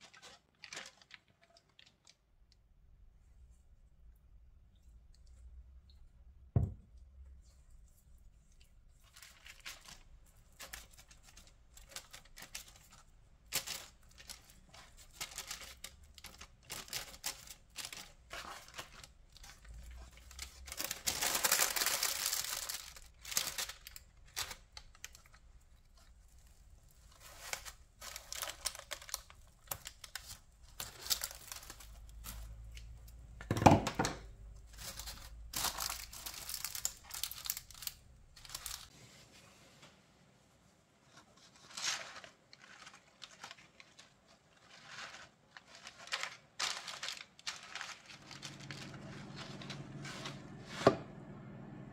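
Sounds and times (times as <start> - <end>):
paper and cling film crinkling: 0.0 - 2.5, 7.4 - 33.3, 34.4 - 39.0, 41.0 - 50.9
thump: 6.6 - 6.9.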